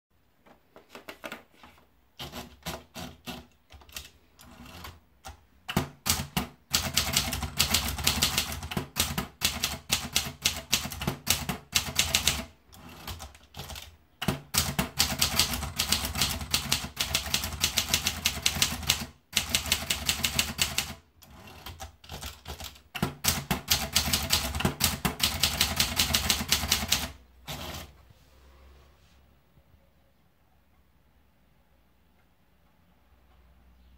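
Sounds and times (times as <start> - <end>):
typewriter keystrokes: 2.2 - 27.9.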